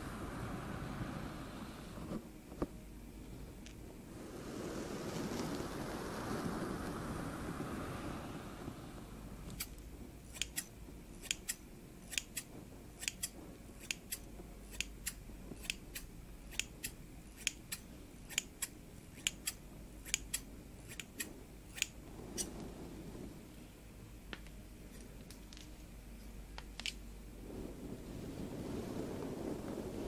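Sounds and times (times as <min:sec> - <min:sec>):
scissors snipping hair: 0:09.5 - 0:22.5.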